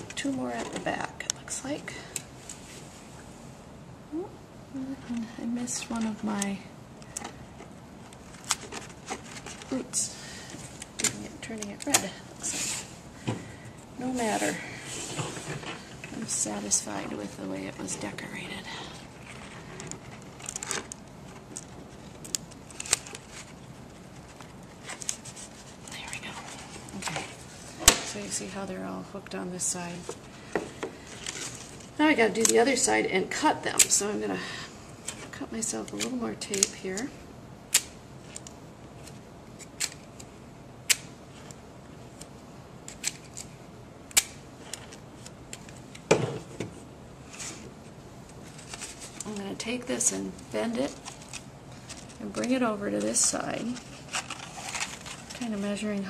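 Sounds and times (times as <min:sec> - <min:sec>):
paper rustling and crinkling: 0:08.0 - 0:10.9, 0:19.2 - 0:28.3, 0:31.0 - 0:32.5, 0:47.2 - 0:49.6, 0:50.7 - 0:56.0
paper rustle: 0:48.4 - 0:49.5, 0:50.8 - 0:55.7.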